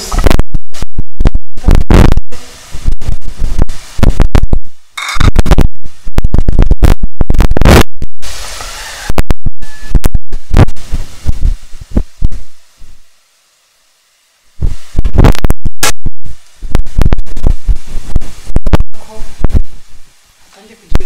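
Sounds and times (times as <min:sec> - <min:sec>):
hot oil sizzling and crackling: 0:02.5 - 0:04.1, 0:08.2 - 0:15.0.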